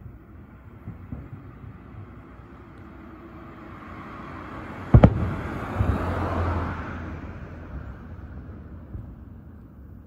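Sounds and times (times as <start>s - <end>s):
fireworks bursting: 0.0s - 3.0s, 4.9s - 6.2s.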